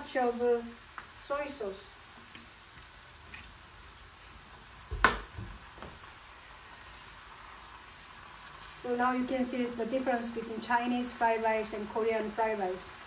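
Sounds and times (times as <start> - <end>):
rice sizzling in a frying pan: 0.0 - 13.0
sharp knock: 4.9 - 5.3.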